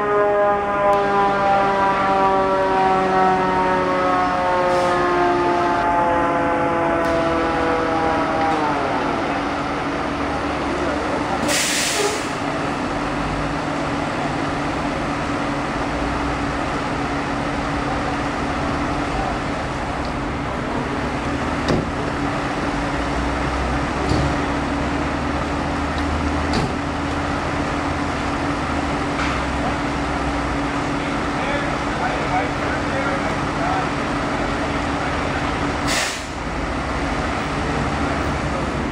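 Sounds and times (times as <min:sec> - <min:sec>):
diesel engine idling: 0:00.0 - 0:38.9
loud hiss: 0:11.4 - 0:12.4, 0:35.8 - 0:36.4.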